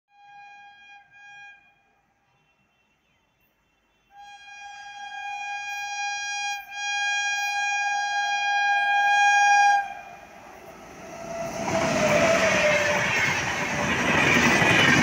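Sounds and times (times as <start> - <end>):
locomotive horn: 0.1 - 10.4
train rumbling at speed: 7.4 - 15.0.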